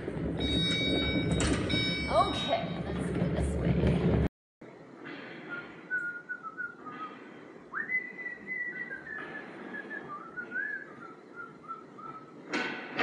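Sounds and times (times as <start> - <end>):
person whistling a tune: 5.5 - 7.0, 7.7 - 12.3.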